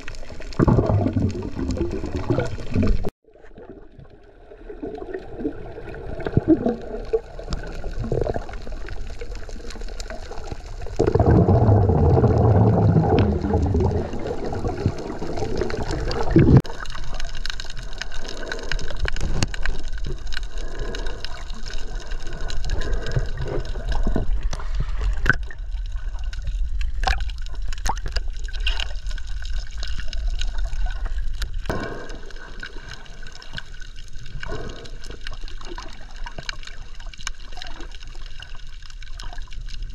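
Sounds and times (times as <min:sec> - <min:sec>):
low rumbling: 0:10.9 - 0:16.7.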